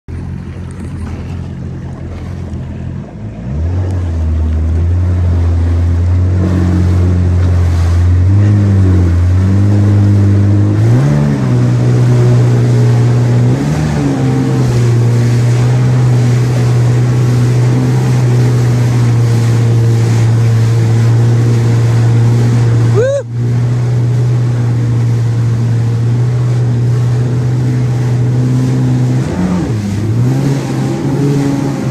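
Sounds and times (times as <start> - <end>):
jet ski engine running: 0.1 - 31.9
water and wind hiss: 0.1 - 31.9.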